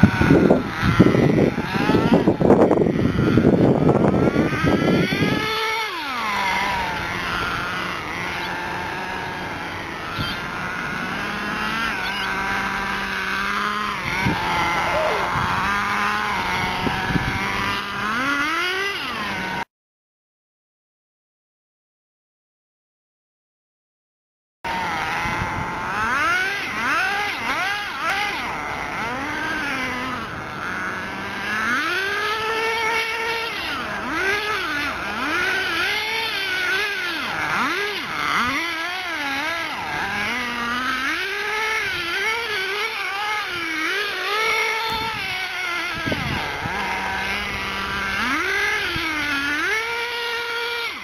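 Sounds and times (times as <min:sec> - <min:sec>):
small nitro engine revving: 0:00.0 - 0:19.7, 0:24.7 - 0:51.0.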